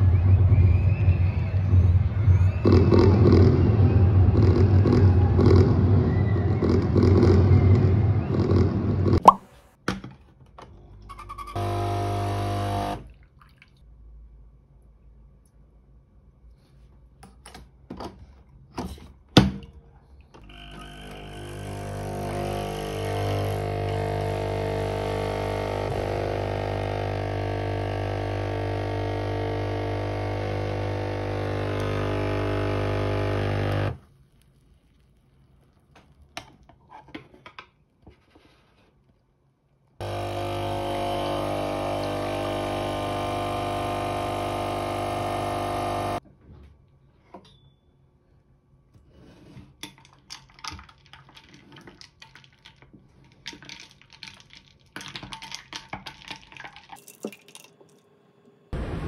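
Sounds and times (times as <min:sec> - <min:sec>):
coffee machine pump buzzing: 0:11.2 - 0:13.0, 0:20.4 - 0:34.0, 0:40.0 - 0:46.2.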